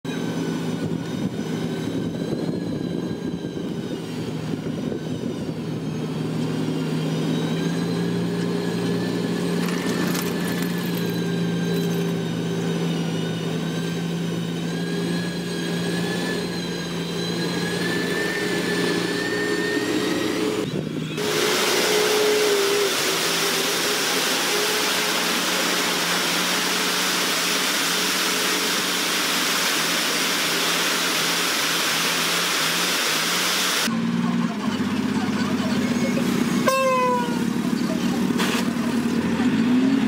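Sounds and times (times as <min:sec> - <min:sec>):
high whine: 0:00.1 - 0:34.2
diesel engines droning: 0:00.1 - 0:40.0.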